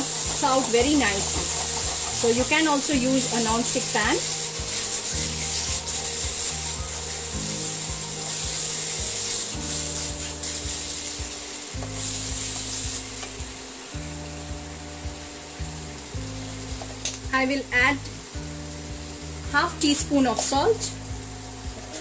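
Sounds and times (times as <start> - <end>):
spatula scraping pan: 0.0 - 11.1
background music low notes: 0.0 - 22.0.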